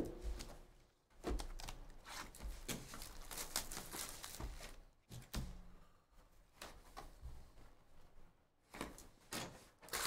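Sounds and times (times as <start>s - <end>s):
cards and wrappers rustling: 1.3s - 4.8s.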